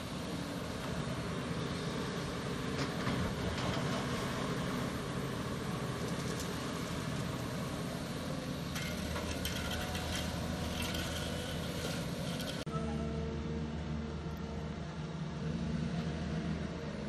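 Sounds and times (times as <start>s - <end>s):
excavator diesel engine rumble: 0.0s - 17.0s
rattly clatter: 8.7s - 12.6s.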